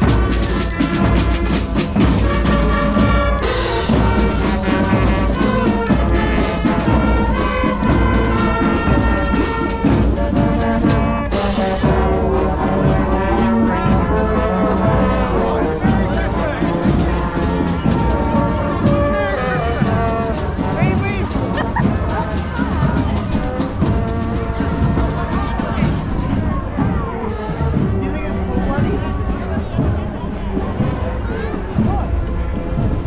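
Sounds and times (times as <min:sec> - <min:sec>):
sharp percussive strokes: 0:00.0 - 0:10.1
brass band music: 0:00.0 - 0:33.0.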